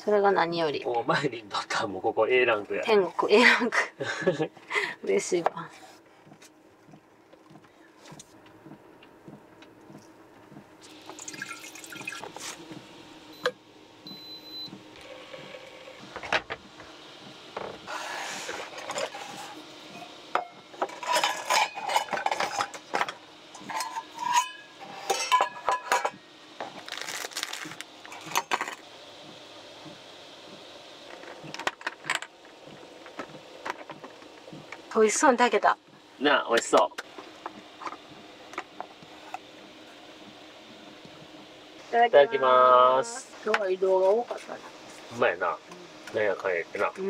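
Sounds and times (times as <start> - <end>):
metal bowls clinking on table: 23.6 - 26.2.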